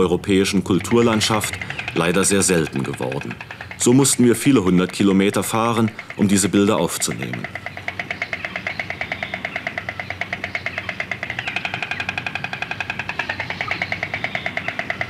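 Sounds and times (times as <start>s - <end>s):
stork clattering its bill: 0.0s - 15.0s.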